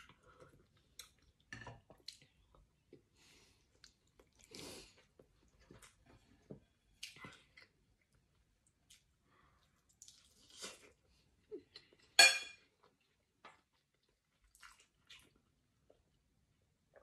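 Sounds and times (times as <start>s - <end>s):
tableware clink: 12.2s - 12.6s.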